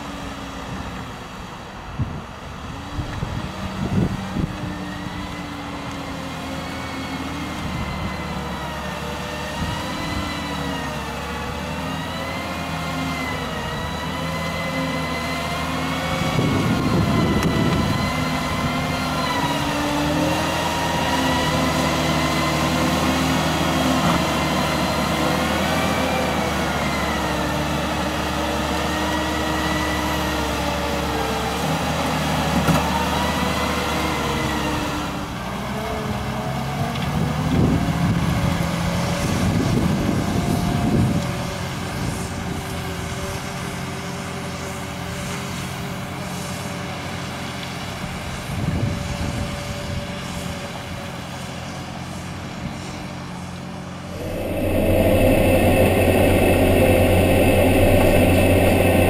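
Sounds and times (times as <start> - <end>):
diesel engine running: 54.0 - 59.0
wavering whine: 54.0 - 59.0.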